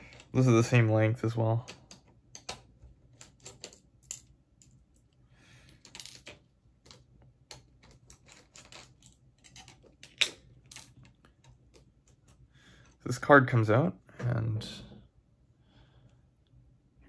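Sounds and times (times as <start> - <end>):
small parts clicking on desk: 1.6 - 12.4.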